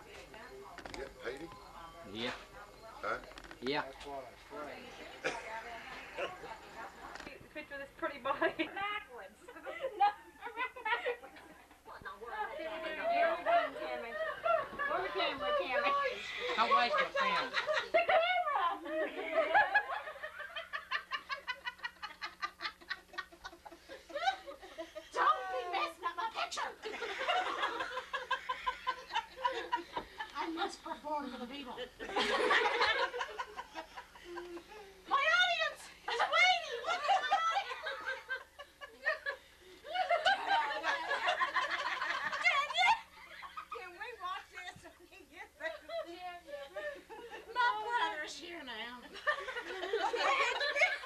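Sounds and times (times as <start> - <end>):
laughter: 9.4 - 11.6, 13.5 - 31.0, 31.8 - 34.9, 36.1 - 48.0, 48.8 - 51.0.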